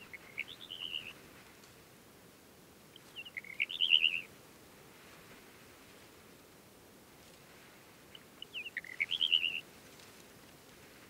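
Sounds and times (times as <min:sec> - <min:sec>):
bird singing warbled phrases: 0:03.2 - 0:04.2, 0:08.5 - 0:09.6.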